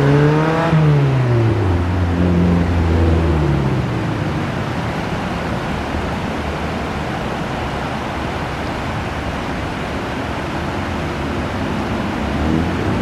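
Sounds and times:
river rapids rushing over rocks: 0.0 - 13.0.

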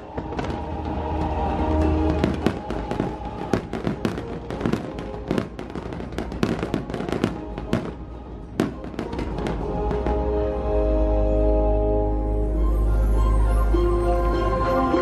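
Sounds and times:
fireworks bangs and crackles: 0.0 - 10.4.

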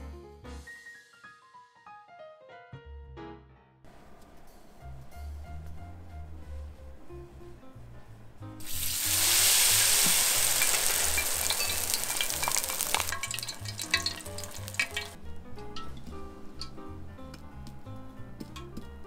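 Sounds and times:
light background music: 0.0 - 19.0
tempura deep-frying in oil: 8.6 - 15.2.

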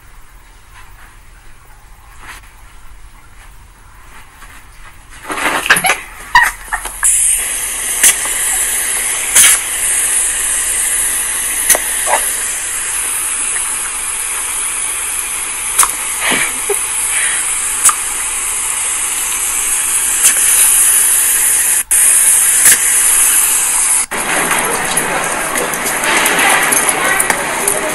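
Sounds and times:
hose nozzle spraying water: 5.3 - 27.9.

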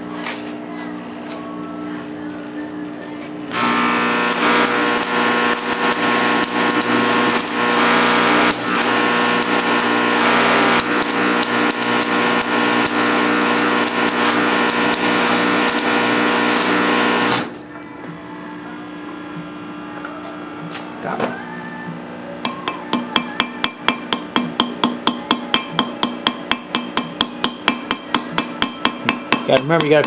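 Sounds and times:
steady hum: 3.4 - 28.9
welding arc crackling sizzle: 3.5 - 17.6.

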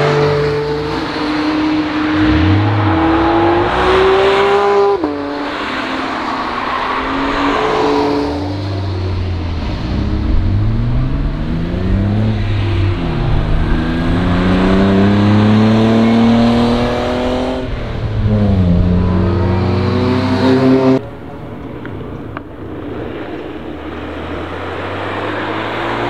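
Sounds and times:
car accelerating through gears: 2.0 - 5.3.

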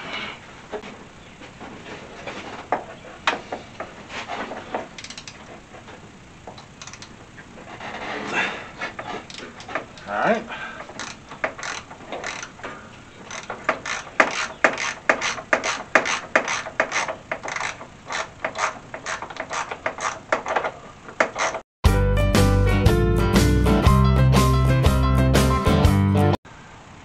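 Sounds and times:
socket ratchet clicking: 5.0 - 5.4, 6.8 - 7.2, 11.0 - 12.6, 13.3 - 20.6
loud guitar music: 21.8 - 26.4.

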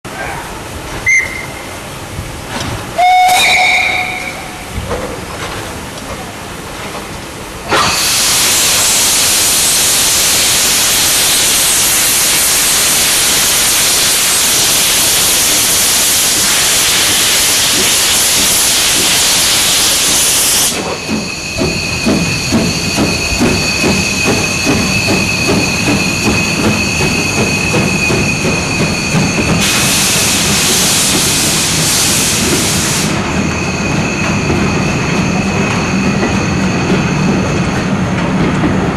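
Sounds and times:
steam whistle blast: 1.0 - 1.7, 3.0 - 4.6
steam hissing: 7.7 - 36.6.

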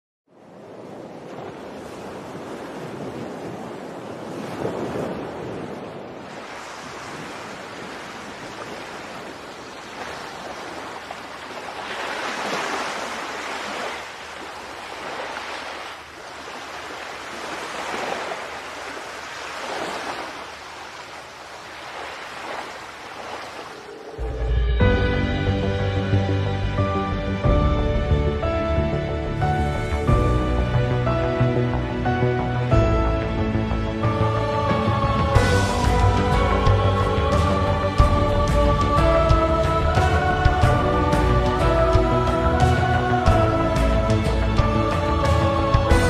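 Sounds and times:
wind: 0.2 - 46.0
music: 24.2 - 46.0.

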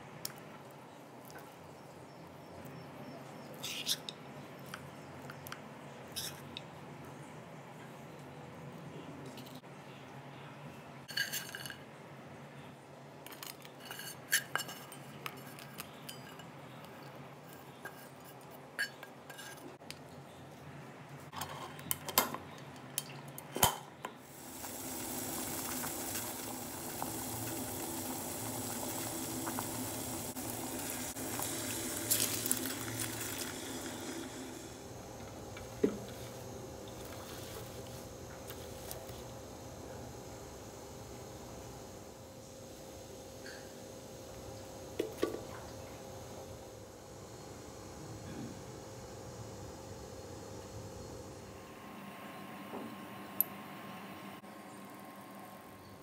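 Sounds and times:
water boiling hiss: 24.2 - 51.9.

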